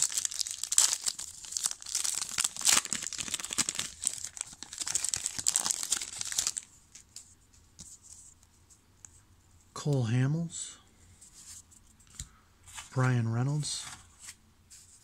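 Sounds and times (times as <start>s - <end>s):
foil wrapper tearing and crinkling: 0.0s - 6.6s.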